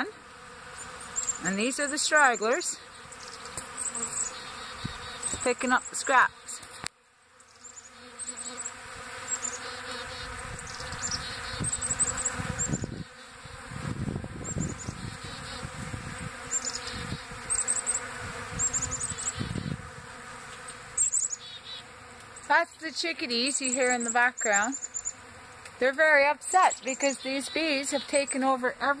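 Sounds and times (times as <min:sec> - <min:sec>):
bees buzzing: 0:00.0 - 0:29.0
chickadees calling: 0:00.7 - 0:06.6, 0:07.4 - 0:13.3, 0:16.4 - 0:19.8, 0:20.6 - 0:22.6, 0:23.4 - 0:25.3, 0:26.5 - 0:28.6.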